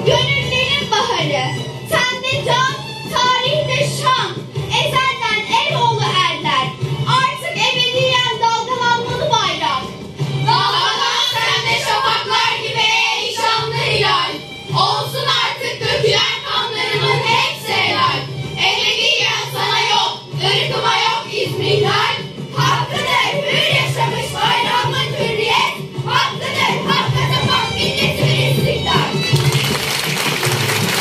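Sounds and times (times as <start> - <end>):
girls singing together: 10.5 - 29.3.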